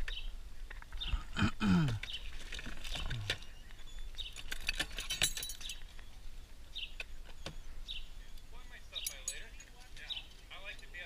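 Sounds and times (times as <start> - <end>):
birds chirping: 0.0 - 11.0
small hard objects clinking: 2.3 - 6.1.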